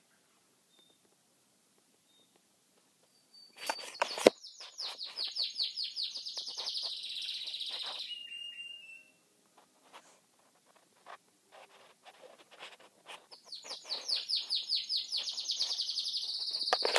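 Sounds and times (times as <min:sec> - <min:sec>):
canary singing: 0:03.0 - 0:09.3, 0:13.2 - 0:16.9.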